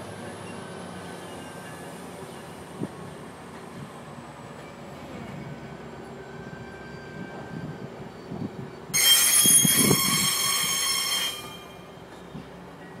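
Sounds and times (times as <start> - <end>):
train coaches rumbling past: 0.0 - 13.0
high-pitched wheel squeal: 9.0 - 11.9.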